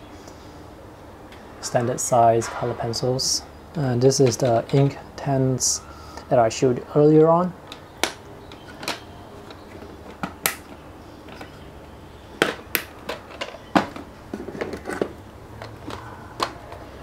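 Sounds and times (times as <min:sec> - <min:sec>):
pencils clicking into plastic case: 0:07.7 - 0:11.6, 0:12.4 - 0:16.9
plastic lid snapping shut: 0:10.1 - 0:11.5, 0:12.4 - 0:14.8.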